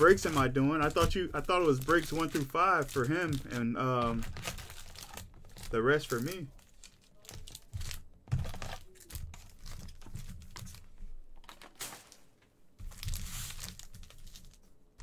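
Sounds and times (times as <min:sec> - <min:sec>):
foil packs crinkling: 0:00.0 - 0:14.8.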